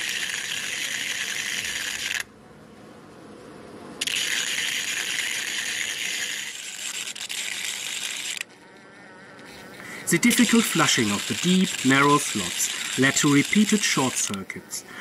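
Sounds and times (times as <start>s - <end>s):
electric sparking crackling buzz: 4.0s - 8.5s, 9.4s - 14.5s.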